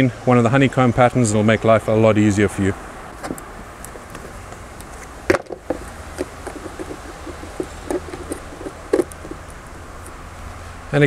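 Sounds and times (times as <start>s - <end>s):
hard plastic clicks and knocks: 5.3s - 9.5s.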